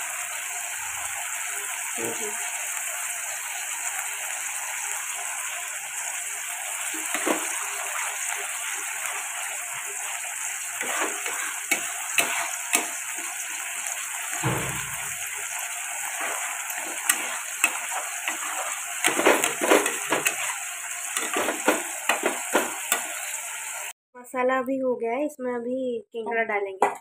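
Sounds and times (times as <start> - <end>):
spice paste sizzling in a pan: 0.0 - 23.9
metal spatula scraping a pan: 6.8 - 23.3.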